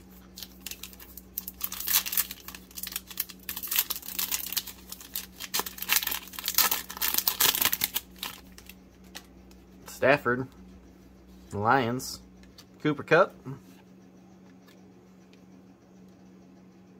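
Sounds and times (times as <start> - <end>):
foil wrapper tearing and crinkling: 0.2 - 9.3.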